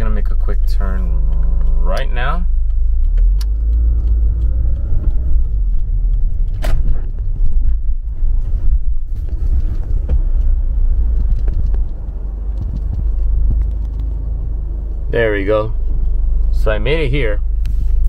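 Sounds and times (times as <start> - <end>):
car engine and road rumble: 0.0 - 18.0
sharp clicks: 0.4 - 8.0, 9.9 - 14.5.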